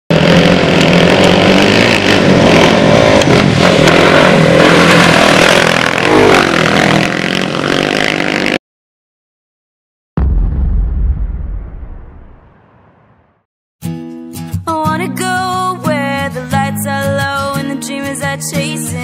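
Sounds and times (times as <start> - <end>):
dirt bike engines revving: 0.1 - 8.6.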